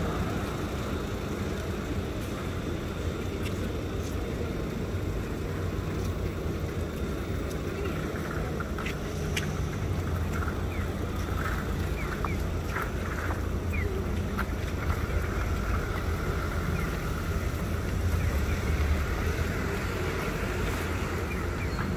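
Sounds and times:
traffic rumble: 0:00.0 - 0:21.9.

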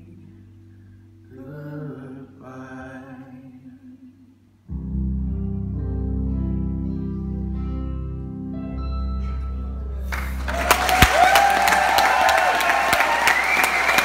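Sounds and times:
person singing softly: 0:00.0 - 0:04.8
guitar: 0:04.7 - 0:12.4.

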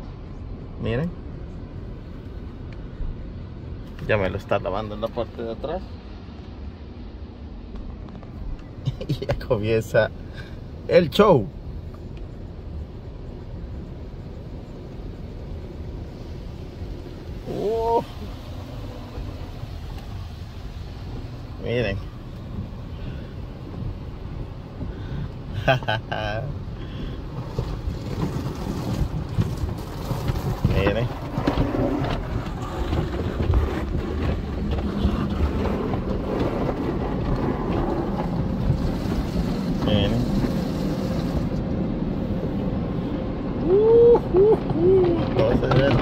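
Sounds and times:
car wash rumble: 0:00.0 - 0:46.0
voice-like tone: 0:17.4 - 0:18.3.

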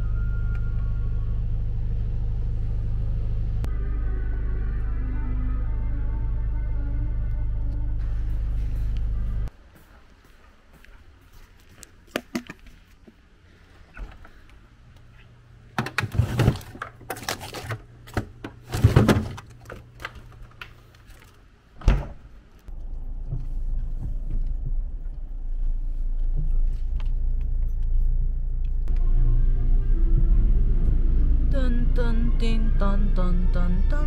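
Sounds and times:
steady low rumble: 0:00.0 - 0:09.5, 0:22.6 - 0:34.0.

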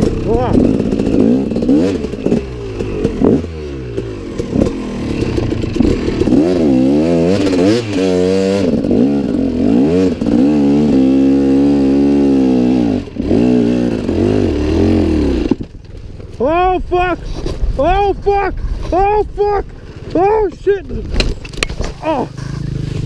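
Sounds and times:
dirt bike engine revving: 0:00.0 - 0:15.8, 0:21.8 - 0:23.0.

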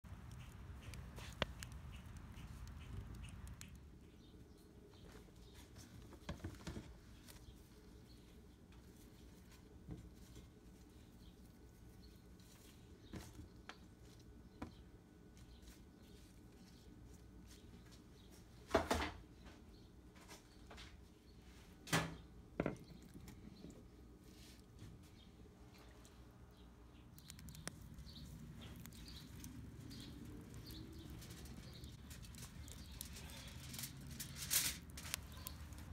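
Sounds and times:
small birds chirping: 0:00.0 - 0:21.6, 0:22.2 - 0:35.9
low room hum: 0:00.1 - 0:35.9
wood fire crackling and popping: 0:27.2 - 0:35.9.

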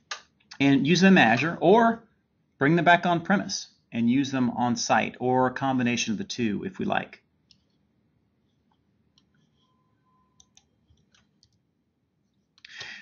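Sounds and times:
computer mouse clicks: 0:10.4 - 0:11.6.

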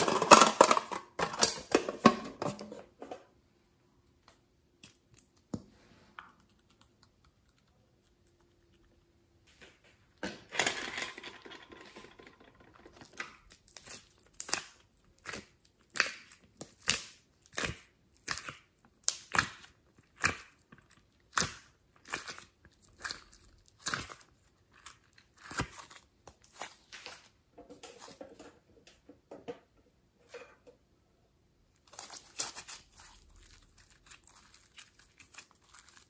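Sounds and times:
slime squelching: 0:13.4 - 0:27.3, 0:31.7 - 0:36.0.

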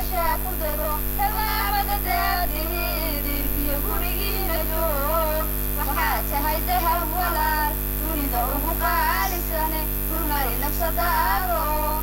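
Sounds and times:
electrical hum: 0:00.0 - 0:12.0
girls singing into microphone: 0:00.0 - 0:12.0.

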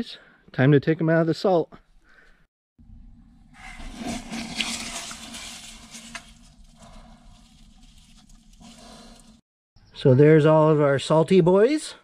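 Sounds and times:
hand scraping wet salt: 0:03.5 - 0:09.4.

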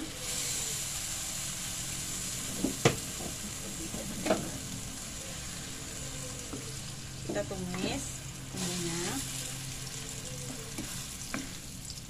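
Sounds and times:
food sizzling in hot oil: 0:00.0 - 0:12.0.

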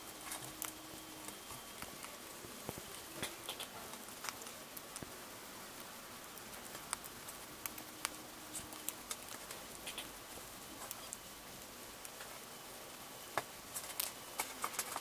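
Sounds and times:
hamster chewing crunches: 0:00.0 - 0:11.2.

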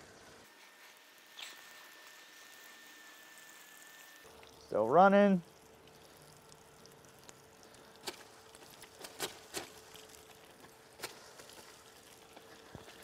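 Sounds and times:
cooling fan hum: 0:00.0 - 0:13.0
hose spray splashing on metal: 0:04.6 - 0:13.0.

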